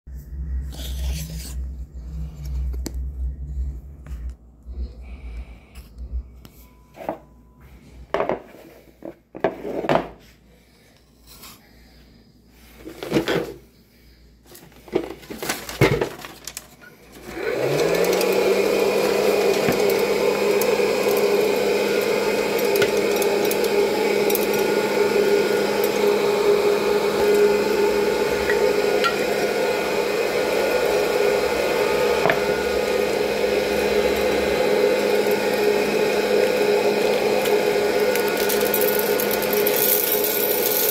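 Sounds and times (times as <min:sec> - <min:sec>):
popcorn popper fan blowing: 0:14.8 - 0:40.9.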